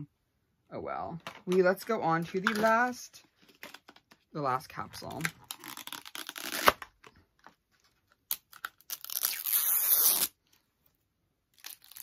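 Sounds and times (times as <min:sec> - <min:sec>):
plastic packaging tearing: 0:05.1 - 0:06.9, 0:08.3 - 0:10.4, 0:11.5 - 0:12.0.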